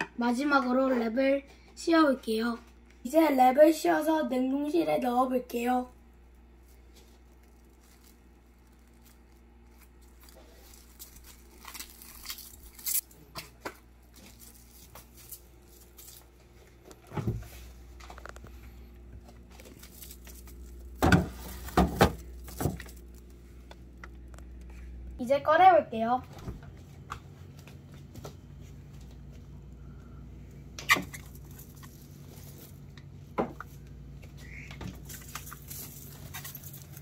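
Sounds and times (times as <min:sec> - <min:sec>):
cling wrap crinkling: 0:05.5 - 0:17.0, 0:19.3 - 0:24.7, 0:31.0 - 0:33.0, 0:35.0 - 0:37.0.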